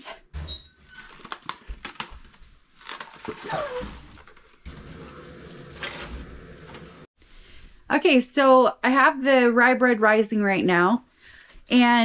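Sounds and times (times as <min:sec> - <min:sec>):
plastic cling wrap crinkling: 0:00.8 - 0:06.2.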